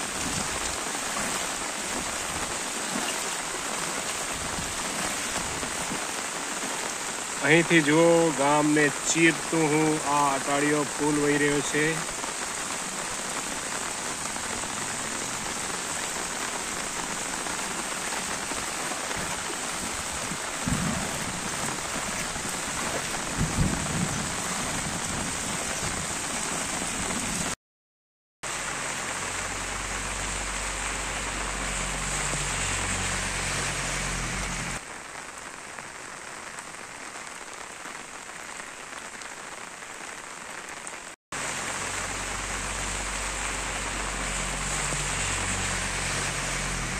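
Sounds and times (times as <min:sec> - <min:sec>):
heavy rain falling: 0:00.0 - 0:27.6, 0:28.4 - 0:46.9.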